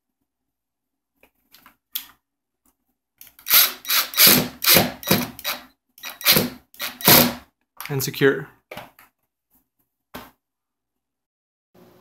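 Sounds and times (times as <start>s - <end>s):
cordless drill driving screw: 3.3s - 7.4s.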